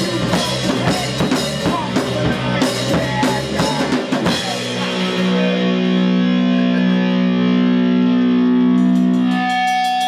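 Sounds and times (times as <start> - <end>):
distorted guitar and bass chord: 0.0 - 10.0.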